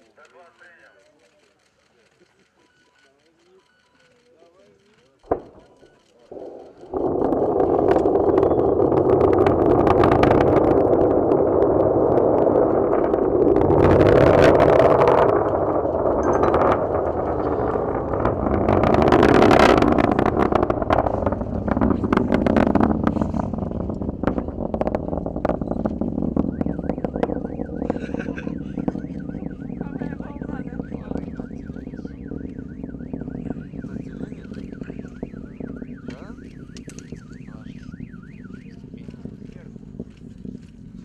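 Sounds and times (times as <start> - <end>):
rocket motor crackling roar: 5.2 - 41.0
warbling siren-like tone: 5.3 - 41.0.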